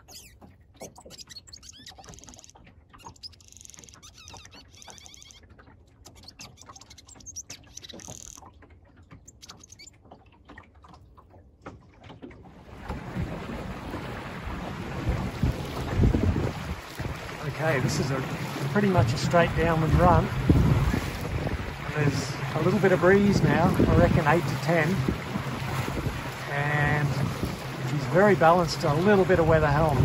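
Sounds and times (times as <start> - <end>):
high chirping squeaks: 0.0 - 5.4, 6.1 - 8.4, 9.3 - 10.0
water streaming past hull: 0.0 - 30.0
wind buffeting microphone: 12.9 - 30.0.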